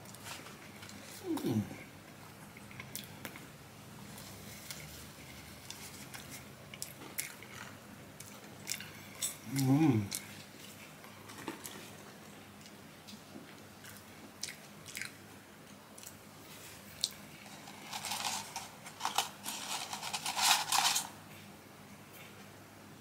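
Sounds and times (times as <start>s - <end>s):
chewing with small clicks: 2.5s - 3.5s, 5.7s - 16.2s
paper carton crinkling: 17.5s - 21.1s.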